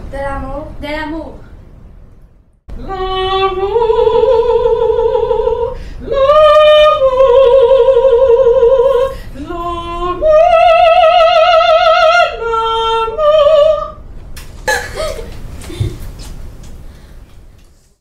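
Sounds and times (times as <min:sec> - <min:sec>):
woman singing operatically: 0:02.7 - 0:14.0.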